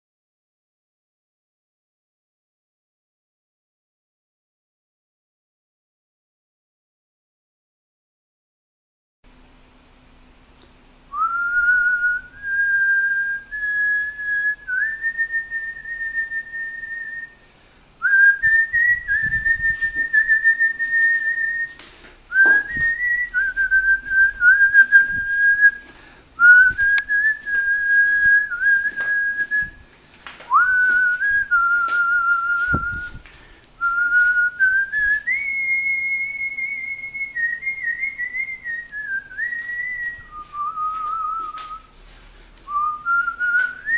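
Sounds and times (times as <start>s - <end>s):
person whistling slow melody: 11.1s - 17.4s, 18.0s - 29.8s, 30.5s - 33.2s, 33.8s - 41.9s, 42.6s - 43.9s.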